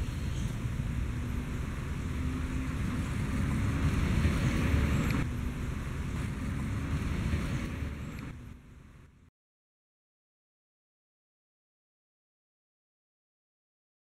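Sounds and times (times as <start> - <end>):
wind buffeting microphone: 0.0 - 9.0
steady low rumble: 0.0 - 9.3.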